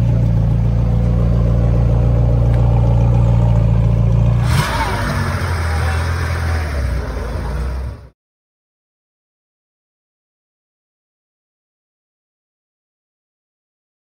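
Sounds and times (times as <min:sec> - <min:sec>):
rough low car engine: 0:00.0 - 0:08.2
supercar engine droning: 0:00.0 - 0:08.2.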